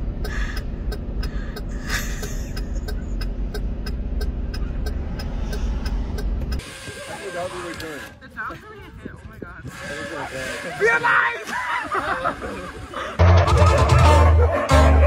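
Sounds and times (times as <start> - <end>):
vehicle engines idling: 0.0 - 15.0
light regular ticking: 0.1 - 6.6.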